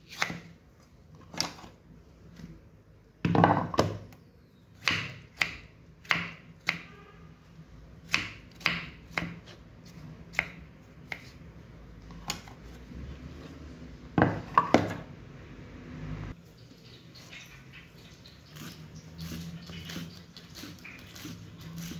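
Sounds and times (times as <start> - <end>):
knife chopping on wooden board: 8.1 - 9.6.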